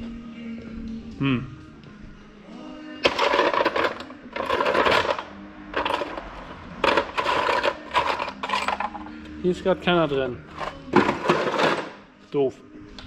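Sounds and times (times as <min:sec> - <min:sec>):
small metal parts clinking: 0:03.0 - 0:09.1.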